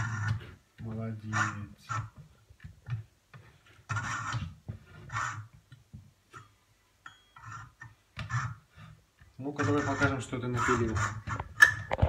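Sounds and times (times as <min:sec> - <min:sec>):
fretsaw rasping through wood: 0:09.4 - 0:11.6.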